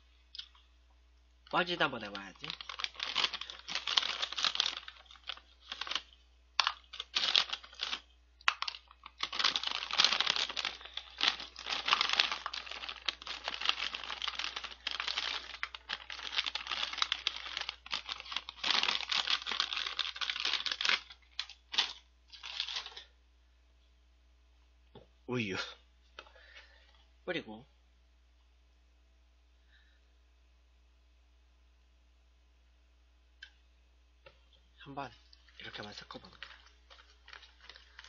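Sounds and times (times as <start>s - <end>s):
plastic snack bag crinkling: 1.5s - 23.1s, 35.2s - 38.0s
small pieces pouring rattle: 6.6s - 23.0s.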